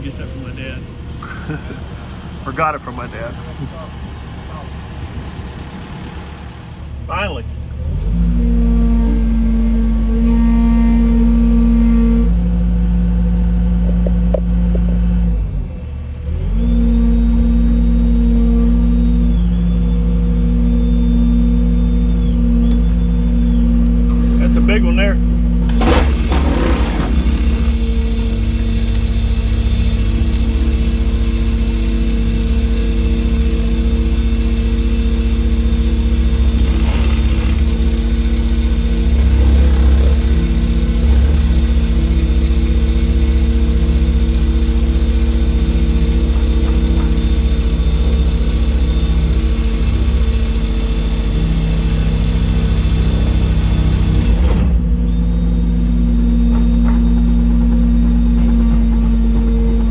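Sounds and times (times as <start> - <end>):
excavator engine and hydraulics: 0.0 - 59.9
pile driver driving piling: 16.3 - 59.9.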